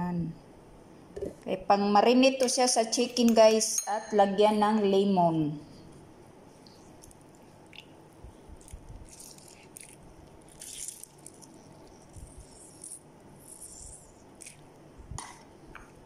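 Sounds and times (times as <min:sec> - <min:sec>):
lemon squeezed by hand: 0:07.0 - 0:14.7.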